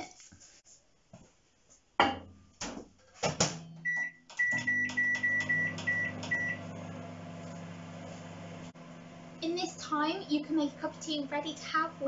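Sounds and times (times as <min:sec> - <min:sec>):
microwave running hum: 0:03.7 - 0:12.0
short high keypad beeps: 0:03.8 - 0:06.6.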